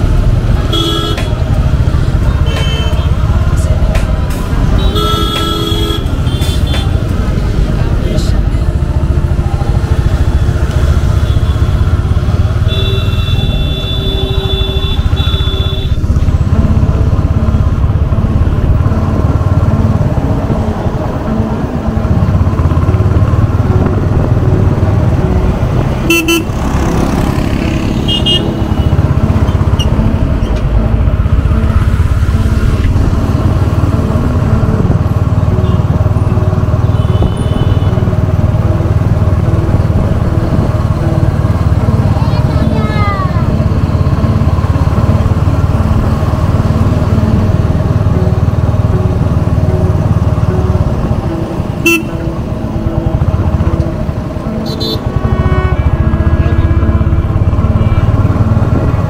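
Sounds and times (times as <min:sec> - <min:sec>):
motorcycle engine running: 0:00.0 - 0:59.0
vehicle horns tooting: 0:00.6 - 0:01.4, 0:02.4 - 0:03.2, 0:04.7 - 0:07.0, 0:11.2 - 0:16.1, 0:26.0 - 0:27.0, 0:27.9 - 0:29.1, 0:36.7 - 0:38.1, 0:51.8 - 0:52.3, 0:54.6 - 0:58.1.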